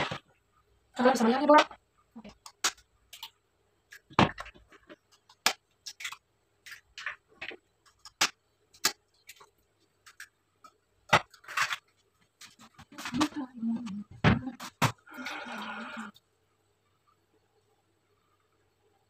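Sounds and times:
eggs cracking against a bowl: 0:01.6 - 0:13.4.

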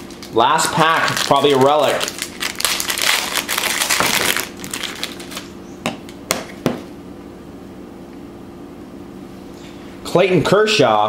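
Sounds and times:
foil wrapper crinkling: 0:00.0 - 0:05.6.

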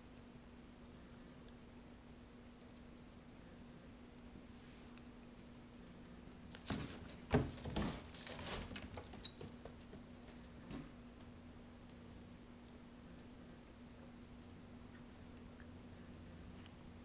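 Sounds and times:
collar tag jingling: 0:06.6 - 0:09.7
cat scrambling against cardboard boxes: 0:06.6 - 0:09.8.

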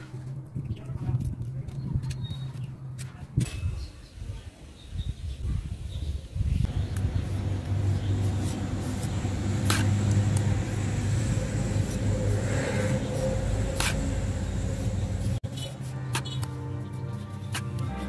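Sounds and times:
music: 0:15.4 - 0:18.0.

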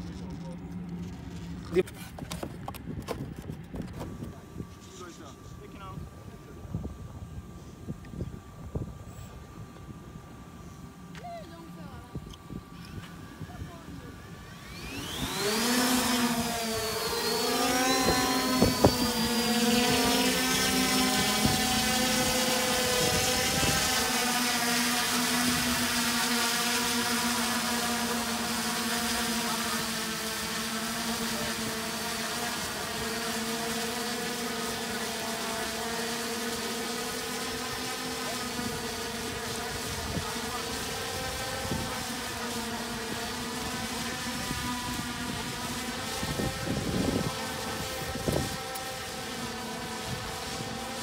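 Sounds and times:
drone propellers buzzing: 0:00.0 - 0:51.0
wind on microphone: 0:06.0 - 0:10.1, 0:16.3 - 0:24.1, 0:44.3 - 0:48.6.

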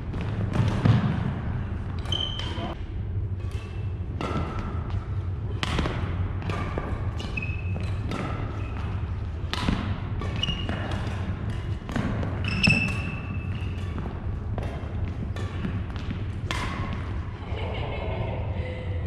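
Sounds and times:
steady low hum: 0:00.0 - 0:19.0
racket striking shuttlecock: 0:00.1 - 0:02.7, 0:03.4 - 0:17.3
court shoes squeaking: 0:01.8 - 0:02.8, 0:03.4 - 0:17.4.

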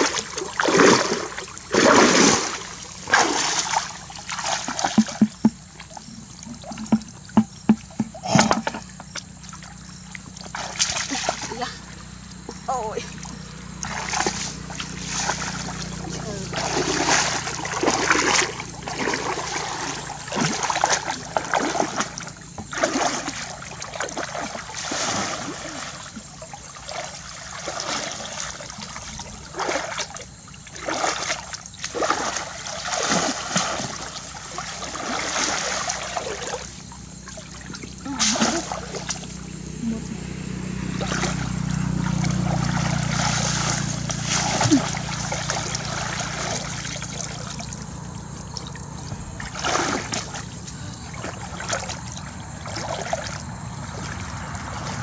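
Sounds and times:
muddy water splashing: 0:00.0 - 0:55.0.

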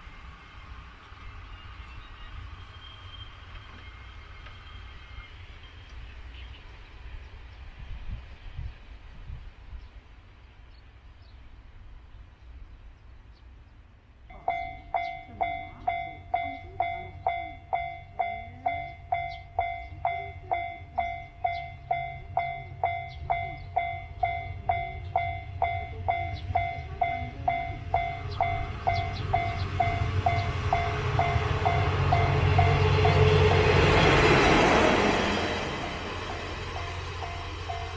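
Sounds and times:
train approaching: 0:00.0 - 0:13.5, 0:14.2 - 0:37.9
level-crossing warning bell ringing: 0:14.3 - 0:37.9.

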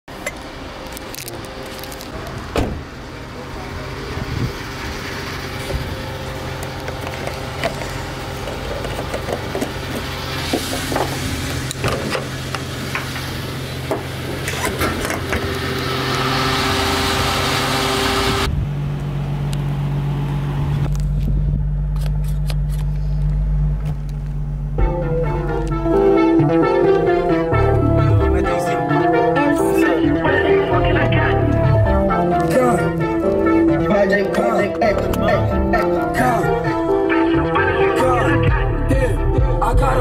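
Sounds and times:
fuel pump noise: 0:00.2 - 0:18.6
steady low hum: 0:18.3 - 0:38.7.

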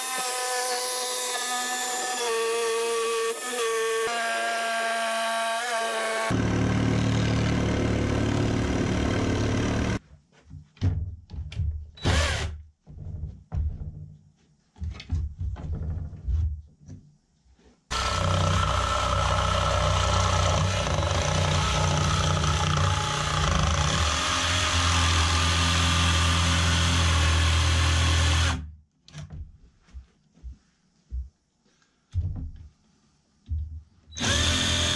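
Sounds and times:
jigsaw cutting wood: 0:00.0 - 0:10.0, 0:12.0 - 0:12.5, 0:17.9 - 0:28.6, 0:34.2 - 0:34.9
knocks and handling: 0:10.0 - 0:12.0, 0:12.7 - 0:17.9, 0:28.9 - 0:34.1.

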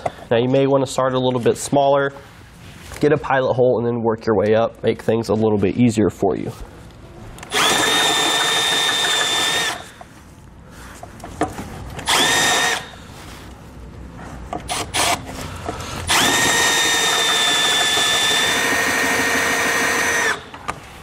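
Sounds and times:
cordless drill boring through metal: 0:07.5 - 0:09.9, 0:12.1 - 0:13.0, 0:16.1 - 0:20.5.

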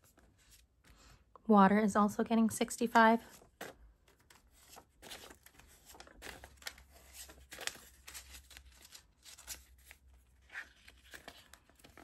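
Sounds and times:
banknotes flicking and rustling: 0:03.3 - 0:12.0.

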